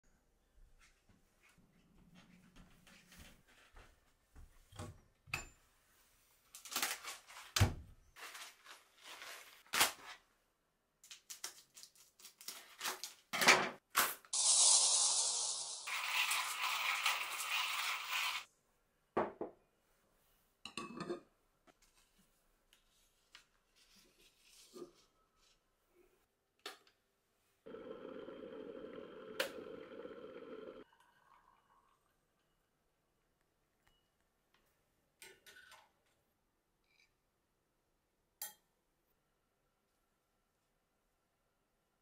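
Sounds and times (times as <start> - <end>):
coffee beans pouring into grinder: 14.4 - 18.4.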